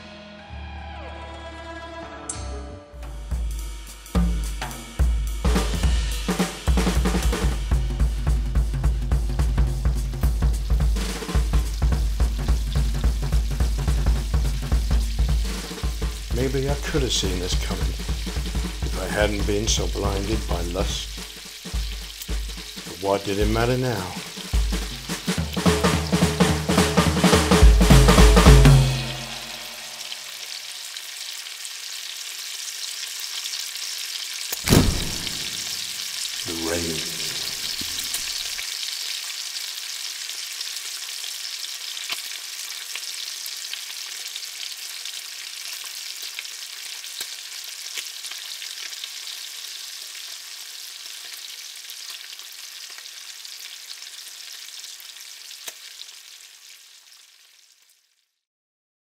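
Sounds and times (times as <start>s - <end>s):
egg sizzling in a pan: 3.6s - 23.0s, 23.6s - 26.2s, 27.9s - 58.4s
thump: 34.6s - 35.6s.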